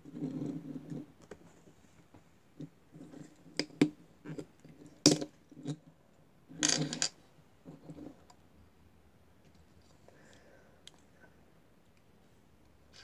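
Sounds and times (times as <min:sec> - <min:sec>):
toy car clatter on table: 0:06.6 - 0:07.2.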